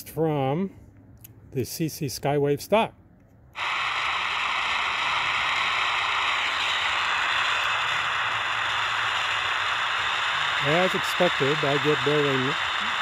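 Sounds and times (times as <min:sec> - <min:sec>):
radio static hiss: 0:03.6 - 0:13.0.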